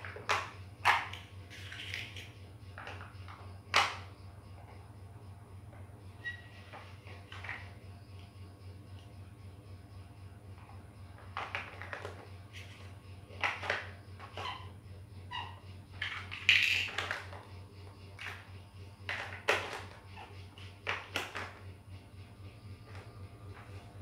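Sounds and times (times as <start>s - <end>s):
plastic toy bricks clicking: 0.0s - 4.0s, 13.4s - 14.4s, 16.0s - 17.5s, 19.1s - 21.6s
low steady hum: 0.0s - 24.0s.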